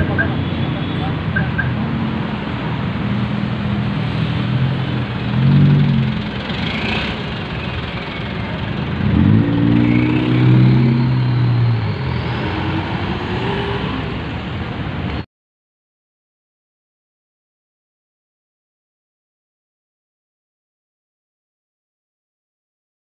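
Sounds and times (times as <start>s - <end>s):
car engine: 0.0s - 15.2s
truck engine revving past: 4.0s - 7.5s, 8.8s - 14.2s.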